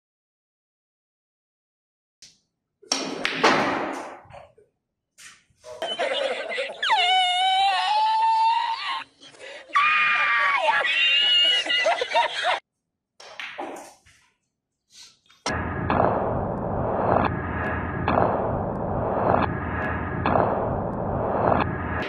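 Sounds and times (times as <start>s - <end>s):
man laughing wildly: 5.8s - 12.6s.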